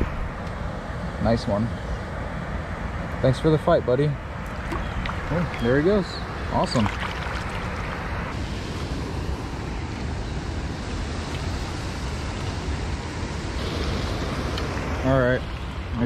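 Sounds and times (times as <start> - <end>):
water rushing over a spillway: 4.6 - 8.5.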